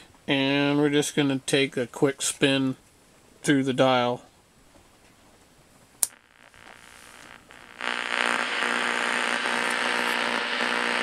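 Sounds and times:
radio static with hum: 6.1 - 11.0
radio switch click: 8.1 - 11.0.

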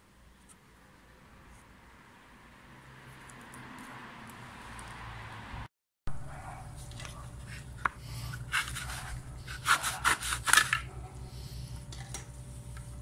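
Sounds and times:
handsaw cutting wood: 8.3 - 10.8.

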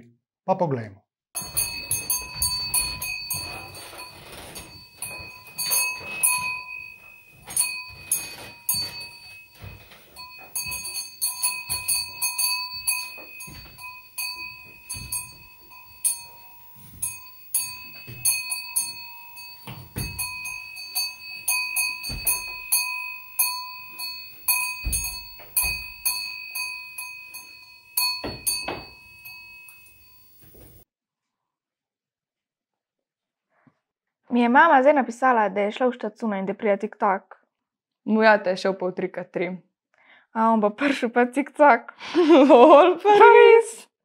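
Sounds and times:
dull thuds: 1.4 - 29.6
cowbell clanking: 1.4 - 30.8.

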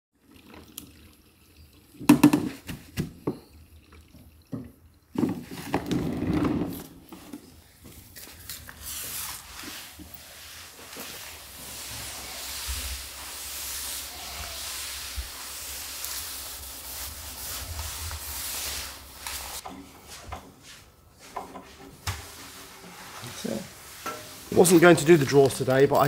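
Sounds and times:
mop swishing on wooden floor: 7.1 - 25.4.

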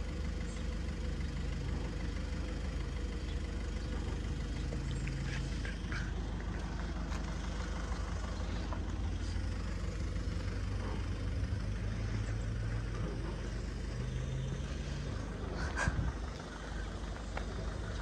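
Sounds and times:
engine idling: 0.0 - 18.0.

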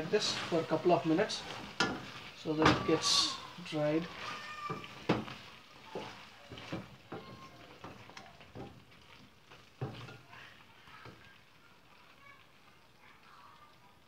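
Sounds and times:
spatula scraping and knocking pot: 0.0 - 10.2.

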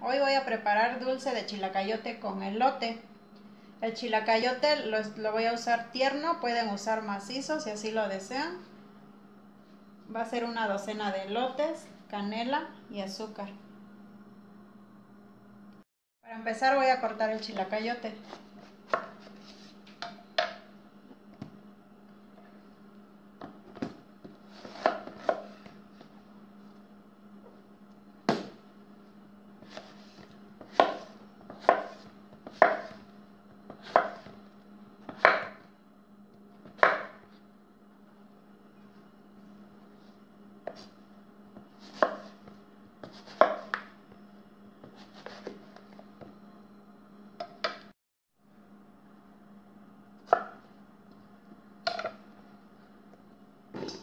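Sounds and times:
faint steady hum: 0.0 - 54.0
knife chopping on wooden board: 24.6 - 25.6, 30.6 - 33.0, 33.7 - 34.4, 35.0 - 35.6, 36.6 - 37.2, 41.8 - 43.9.

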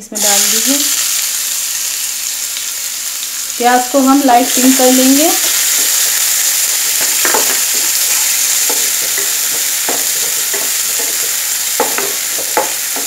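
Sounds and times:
onions sizzling in oil: 0.0 - 13.0
spatula scraping a pan: 5.5 - 13.0.

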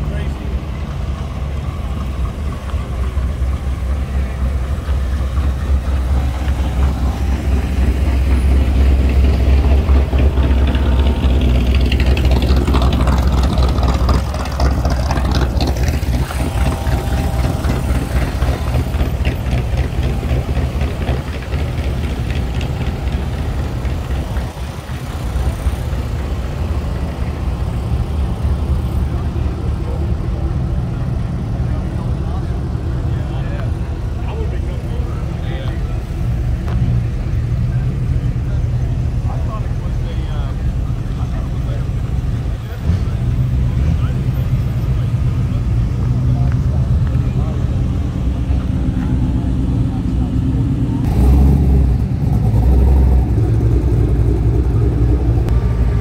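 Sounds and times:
car engines idling and rumbling: 0.0 - 56.0.

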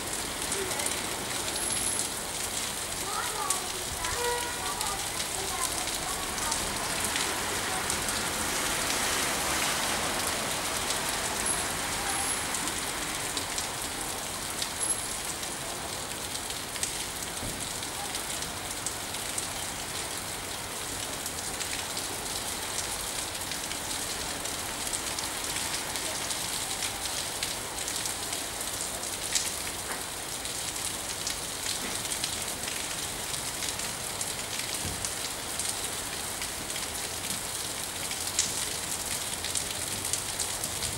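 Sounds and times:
steady rain hiss: 0.0 - 40.9
raindrops ticking: 0.1 - 9.0.

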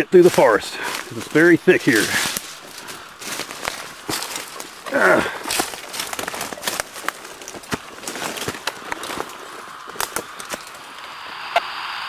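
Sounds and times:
twigs cracking and rustling: 0.0 - 11.2
footsteps crunching through dry leaves: 0.0 - 11.3.

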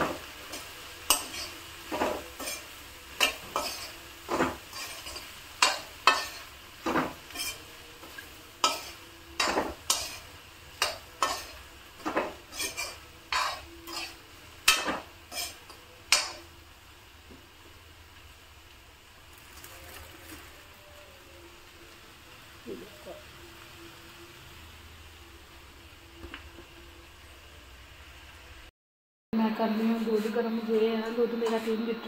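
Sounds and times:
spatula scraping metal pan: 0.0 - 16.4.

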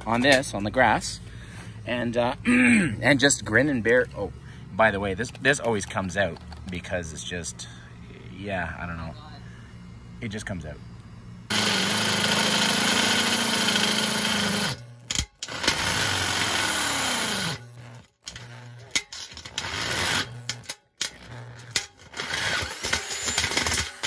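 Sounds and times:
electric drill boring through metal: 11.5 - 24.0.

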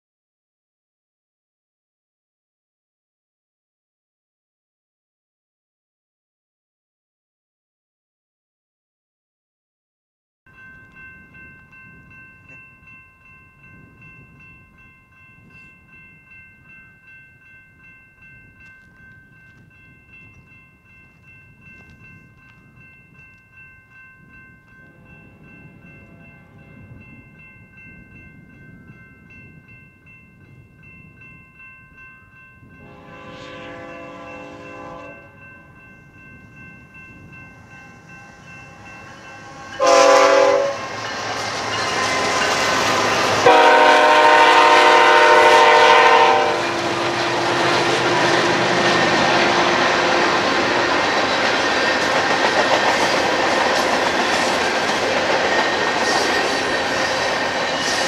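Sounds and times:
locomotive horn blasts: 32.8 - 35.4, 39.8 - 41.0, 43.4 - 50.3.

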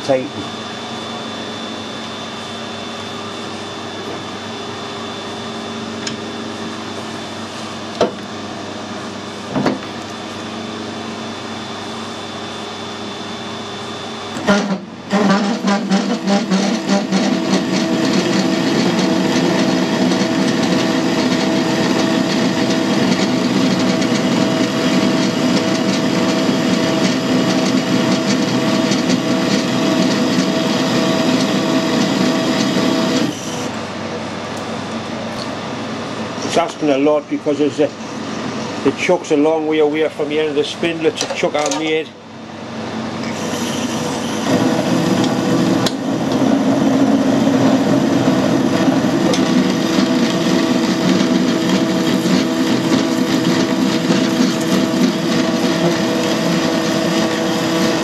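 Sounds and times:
metal lathe running: 14.3 - 34.0, 43.2 - 58.0
lathe tool cutting steel: 14.4 - 33.7, 43.3 - 58.0.

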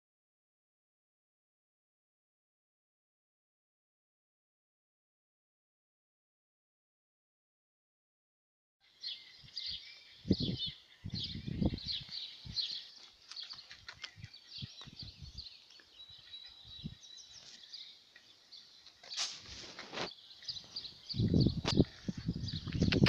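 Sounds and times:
songbirds chirping and singing: 8.8 - 23.0
low rumbles on microphone: 10.2 - 12.7, 20.9 - 23.0.

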